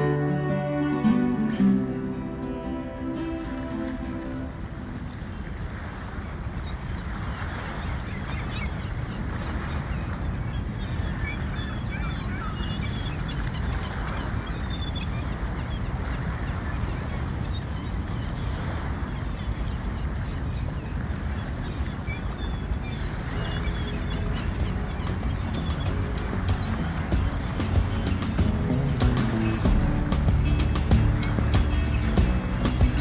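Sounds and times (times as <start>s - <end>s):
gulls calling: 0.0s - 33.0s
steady low rumble: 23.9s - 33.0s.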